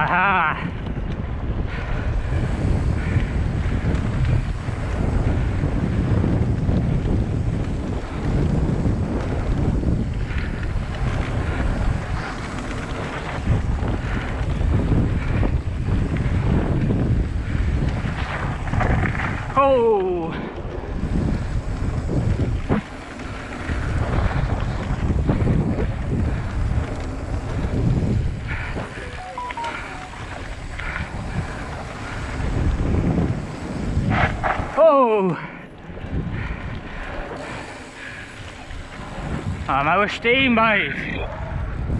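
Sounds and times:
bike tyres rumbling on dirt: 0:00.0 - 0:29.2, 0:30.1 - 0:41.9
wind buffeting microphone: 0:00.0 - 0:41.9
high chirps: 0:29.1 - 0:30.3.

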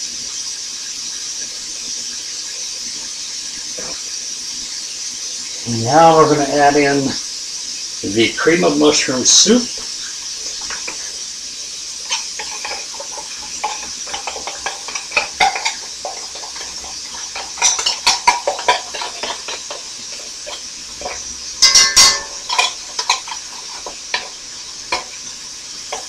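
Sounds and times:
meat sizzling in a skillet: 0:00.0 - 0:26.0
metal spoon scraping in a can: 0:12.0 - 0:26.0
sharp ringing clinks: 0:21.6 - 0:22.8.

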